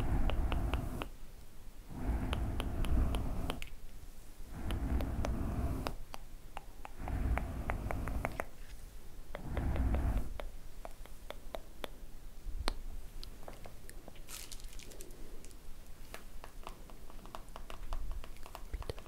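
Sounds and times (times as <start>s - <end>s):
hissing swish: 0.0s - 1.1s, 1.9s - 3.8s, 4.4s - 6.1s, 6.9s - 8.6s, 9.4s - 10.4s.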